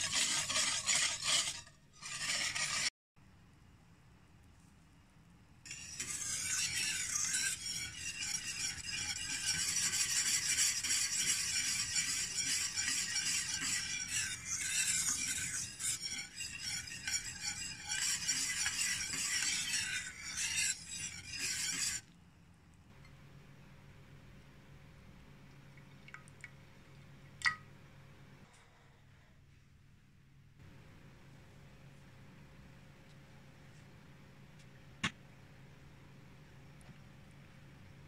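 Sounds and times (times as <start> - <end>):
whisk stirring bubbling mixture: 0.0 - 2.9, 5.7 - 22.2.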